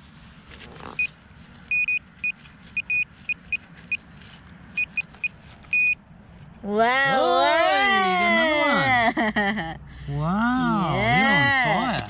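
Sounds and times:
metal detector probe beeping: 1.7 - 4.0, 4.8 - 6.0
person speaking: 10.0 - 12.0.

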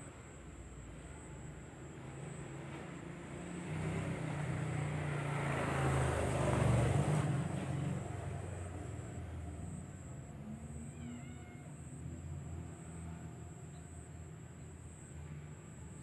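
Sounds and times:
vehicle engine passing by: 2.1 - 10.2.

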